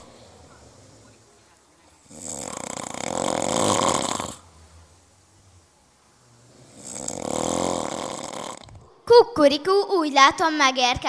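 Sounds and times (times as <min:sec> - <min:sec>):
loud snoring: 0:02.0 - 0:04.6, 0:06.4 - 0:08.8.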